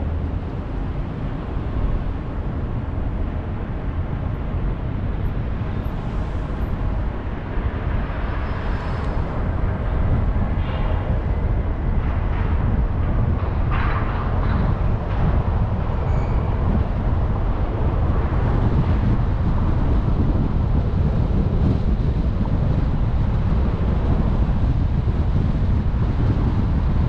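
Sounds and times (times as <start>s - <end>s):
car road and engine rumble: 0.0s - 27.0s.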